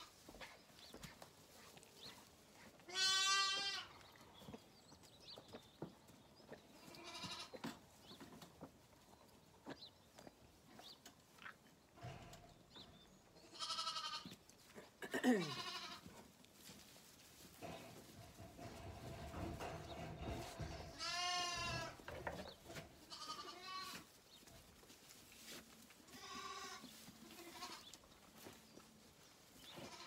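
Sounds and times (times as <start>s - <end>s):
lambs bleating: 2.9s - 3.9s, 6.9s - 7.6s, 13.5s - 14.3s, 15.4s - 16.1s, 20.6s - 22.0s, 23.1s - 24.1s, 26.1s - 27.9s.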